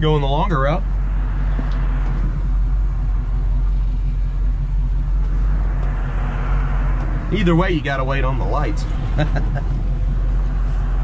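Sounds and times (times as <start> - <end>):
engine exhaust rumble: 0.0 - 11.0
tyre and road noise: 0.0 - 11.0.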